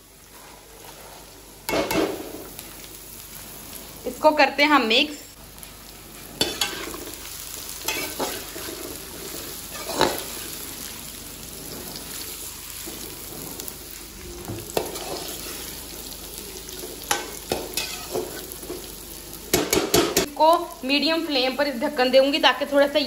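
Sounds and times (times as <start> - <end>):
vegetables sizzling in oil: 0.0 - 23.0
metal spatula scraping a wok: 0.3 - 2.3, 6.4 - 15.9, 17.0 - 18.6.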